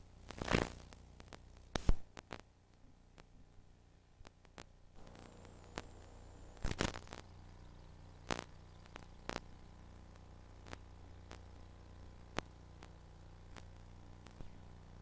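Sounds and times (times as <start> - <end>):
mains hum: 0.0 - 15.0
tape hiss: 0.0 - 15.0
faint high whine: 5.0 - 15.0
tape clicks: 5.0 - 15.0
tape crackling: 5.0 - 15.0.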